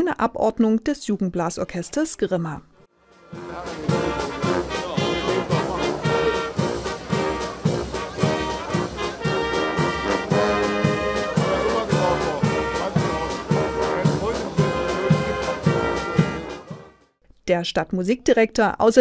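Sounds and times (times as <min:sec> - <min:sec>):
brass band playing: 0:02.9 - 0:17.1
bass drum beat: 0:03.3 - 0:16.9.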